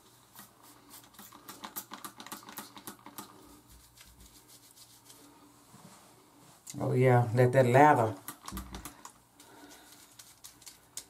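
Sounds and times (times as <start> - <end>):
fingertips scrubbing wet hair: 0.3 - 5.4.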